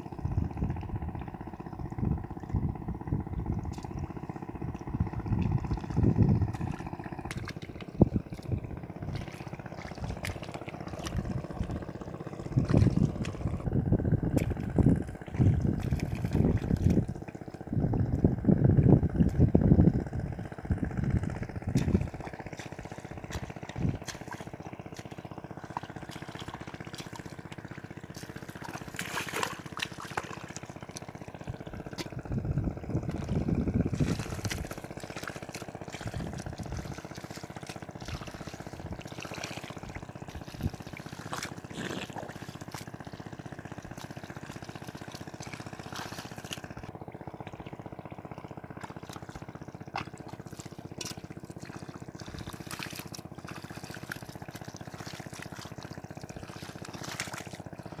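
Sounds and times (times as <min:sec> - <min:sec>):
faint steady hum: 0:00.0 - 0:58.0
feet squelching through mud: 0:00.5 - 0:17.8, 0:19.2 - 0:58.0
water trickling and dripping: 0:03.4 - 0:13.6.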